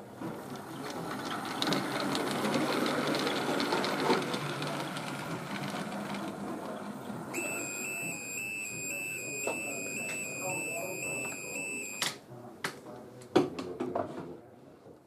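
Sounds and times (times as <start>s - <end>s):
model train motor whirring: 0.5s - 12.0s
pulsing electronic beep: 7.4s - 12.1s.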